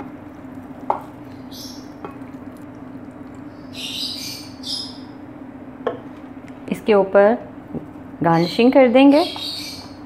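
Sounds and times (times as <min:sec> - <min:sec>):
milk pouring with soft splashes: 0:00.0 - 0:03.8
steady low hum: 0:00.0 - 0:10.0.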